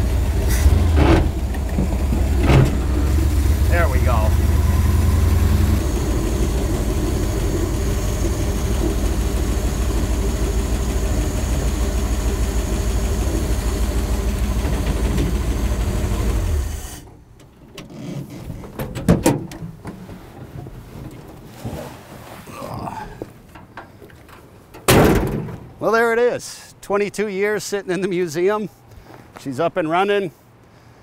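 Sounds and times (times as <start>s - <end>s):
van engine running: 0.0s - 17.4s.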